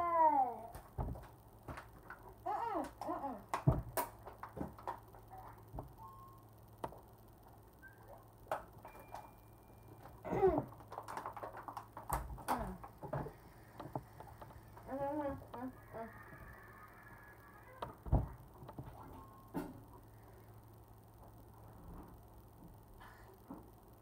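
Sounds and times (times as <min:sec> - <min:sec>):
knocks and thumps: 0:00.8 - 0:01.8, 0:03.6 - 0:04.9, 0:17.8 - 0:19.8.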